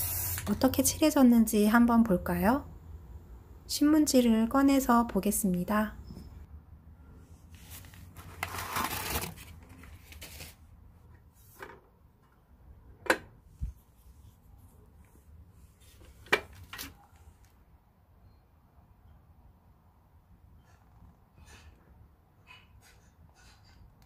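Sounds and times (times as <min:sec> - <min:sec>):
newspaper rustling: 0:07.5 - 0:10.7.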